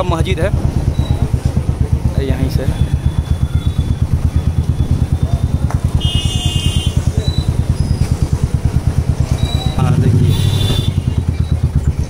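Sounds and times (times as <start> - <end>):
motorcycle engine running: 0.0 - 12.0
high-pitched beep: 0.9 - 1.3.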